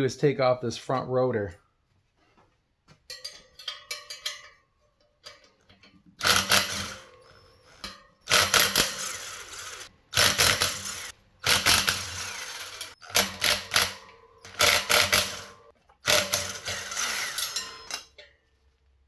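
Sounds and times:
impact driver hammering: 0:06.2 - 0:07.1, 0:08.3 - 0:18.0.

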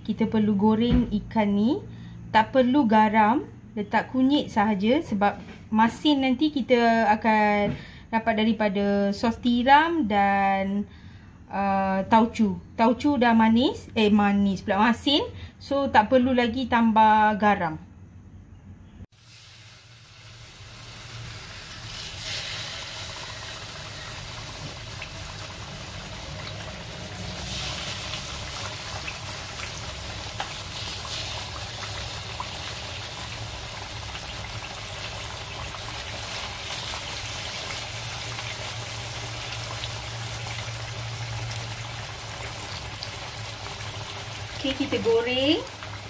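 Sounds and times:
fish sizzling in hot oil: 0:19.1 - 0:46.0.

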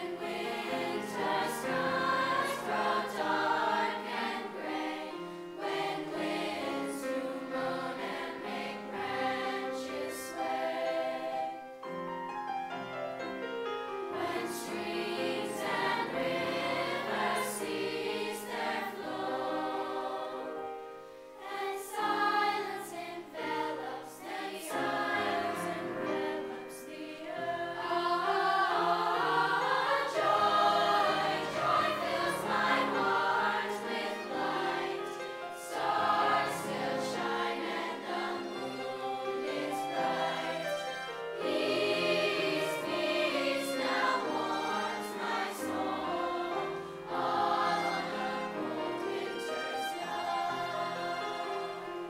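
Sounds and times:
choir singing in parts: 0:00.0 - 0:11.9, 0:14.0 - 0:52.0
piano: 0:00.0 - 0:52.0
violin: 0:12.7 - 0:52.0.

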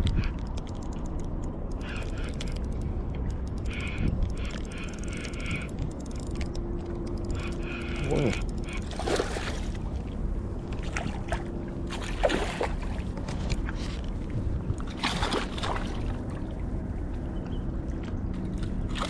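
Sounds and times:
water lapping against seawall: 0:07.3 - 0:19.0.

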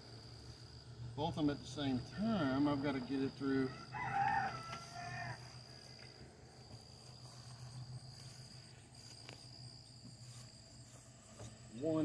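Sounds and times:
insect chirring: 0:00.0 - 0:12.0
rooster crowing: 0:03.6 - 0:06.0.

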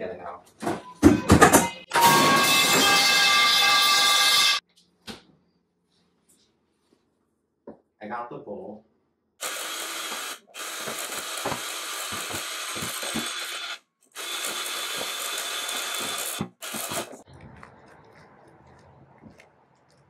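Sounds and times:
electric hand mixer whirring: 0:09.4 - 0:17.2.

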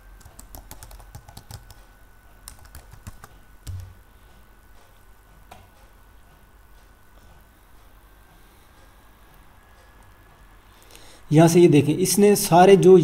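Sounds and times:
keyboard key clicks: 0:02.5 - 0:04.0.

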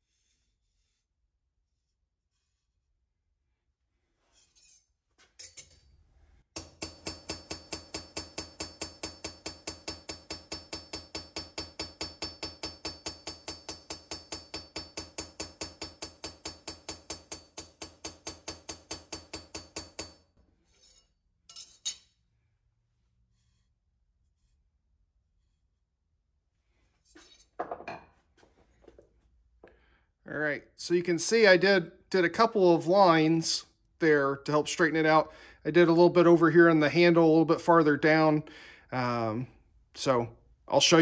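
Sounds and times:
hammer tapping blade on anvil: 0:06.6 - 0:20.2.

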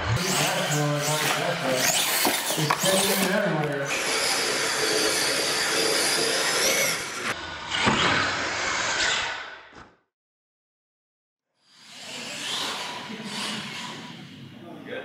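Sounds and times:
electric motors whining: 0:00.0 - 0:07.8.

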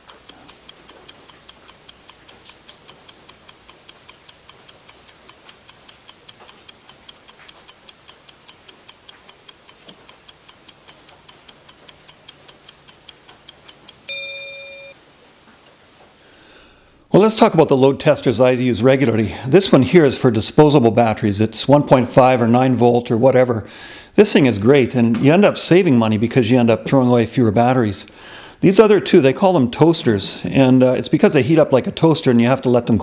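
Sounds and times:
timer ticking: 0:00.0 - 0:15.0
ringing beep: 0:14.1 - 0:15.0.

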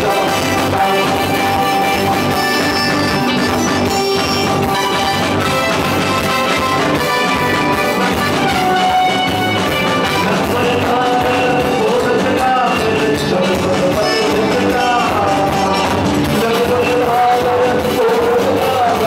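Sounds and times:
man singing into microphone: 0:00.0 - 0:04.4, 0:10.0 - 0:19.0
backing band with keyboard: 0:00.0 - 0:19.0.

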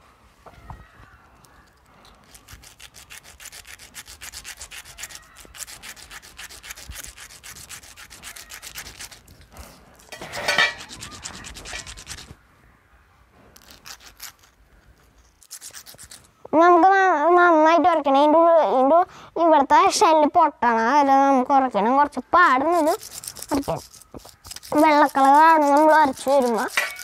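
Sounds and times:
seed scraping on sandpaper: 0:01.4 - 0:12.4, 0:13.6 - 0:16.4, 0:22.4 - 0:27.0.

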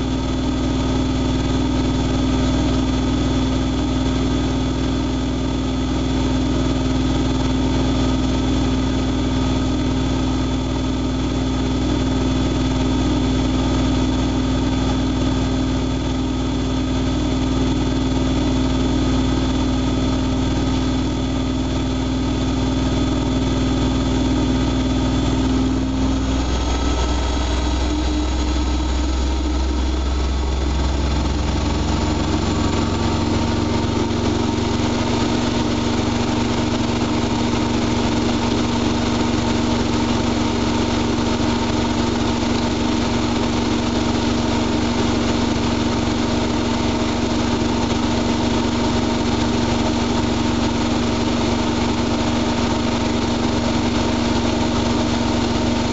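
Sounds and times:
washing machine motor hum: 0:00.0 - 0:55.9.

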